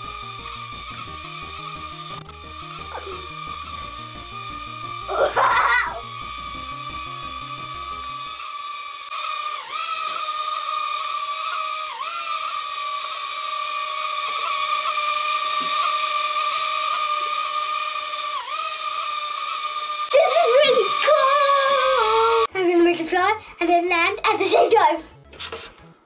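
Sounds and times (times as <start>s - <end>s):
toy quadcopter propeller whine: 0.0s - 22.5s.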